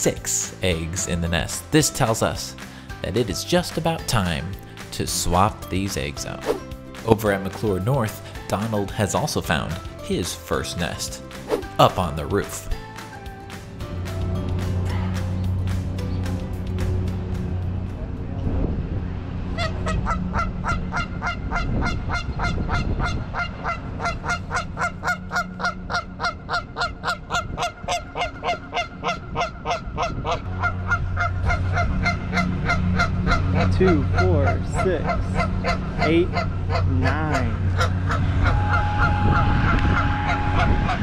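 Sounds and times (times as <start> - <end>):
goose honking: 19.5 - 41.0
low steady hum: 23.0 - 41.0.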